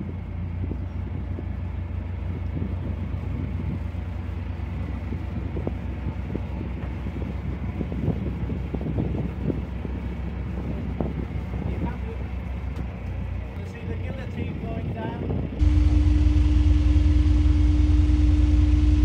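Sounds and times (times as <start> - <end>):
boat engine idling: 0.0 - 19.0.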